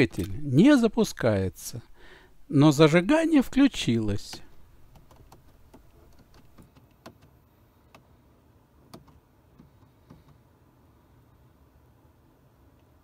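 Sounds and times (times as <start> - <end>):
low steady hum: 0.0 - 13.0
faint irregular clicks: 4.3 - 8.1, 8.8 - 10.5.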